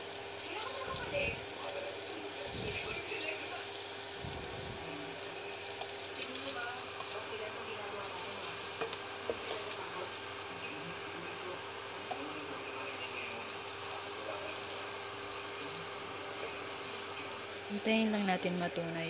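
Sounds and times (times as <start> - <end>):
butter sizzling in a wok: 0.0 - 19.0
spatula tapping and scraping: 8.4 - 9.8.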